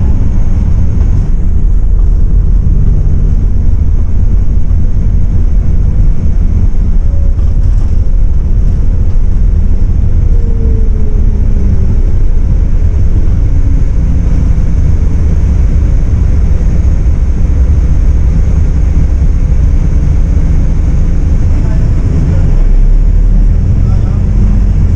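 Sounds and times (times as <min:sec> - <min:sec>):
coach engine and road rumble: 0:00.0 - 0:24.9
faint tone sliding down: 0:10.1 - 0:12.8.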